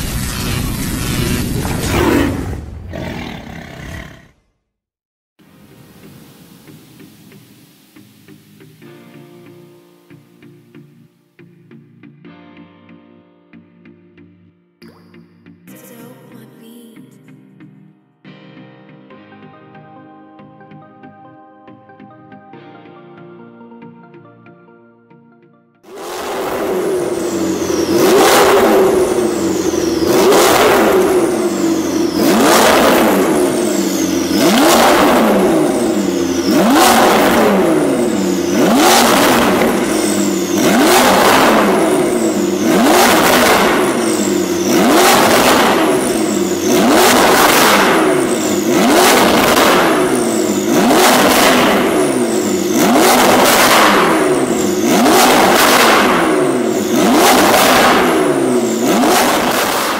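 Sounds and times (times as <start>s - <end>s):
car engine revving: 25.9s - 59.9s.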